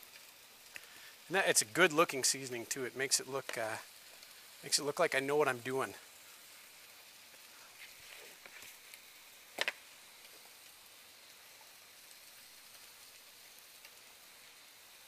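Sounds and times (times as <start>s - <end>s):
onions and mushrooms sizzling: 0.0s - 15.0s.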